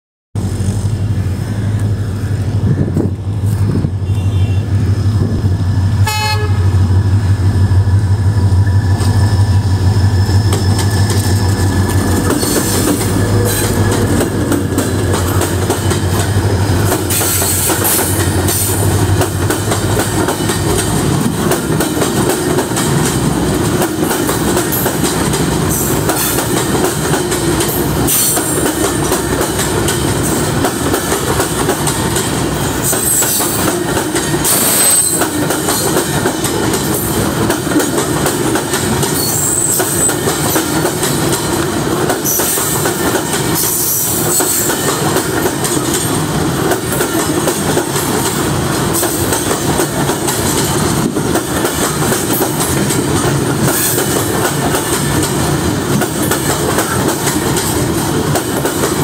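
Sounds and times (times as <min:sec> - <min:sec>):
locomotive hum: 0:00.4 - 0:59.0
train horn blast: 0:04.0 - 0:04.8, 0:06.0 - 0:06.9
train wheels clacking over rail joints: 0:08.4 - 0:59.0.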